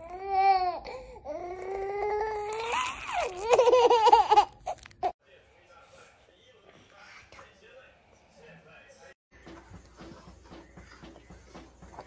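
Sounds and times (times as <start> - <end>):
baby laughing: 2.4 - 5.1.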